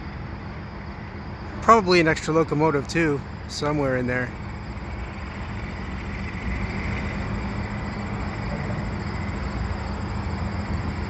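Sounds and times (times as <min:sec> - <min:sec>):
distant locomotive rumble: 0:00.0 - 0:11.0
faint high whine: 0:00.0 - 0:11.0.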